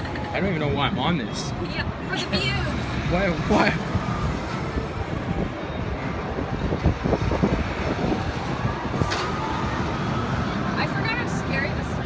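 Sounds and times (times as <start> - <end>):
wind on microphone: 2.9 - 10.7.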